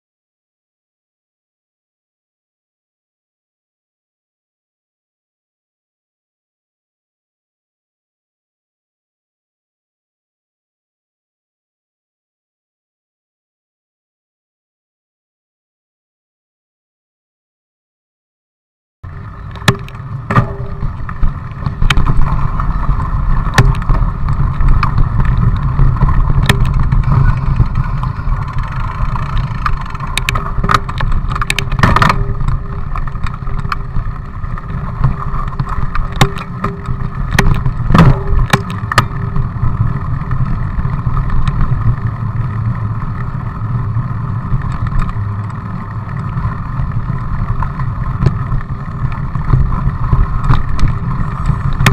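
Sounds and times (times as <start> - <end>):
bike clicks and rattles: 19.1 - 51.9
bike tyre hum: 19.1 - 51.9
wind rumbling on microphone: 19.1 - 51.9.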